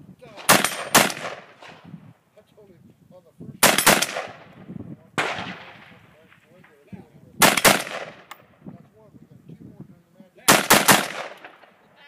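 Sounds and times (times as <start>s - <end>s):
rifle shots with echo: 0.3s - 1.9s, 3.6s - 8.5s, 10.4s - 11.8s.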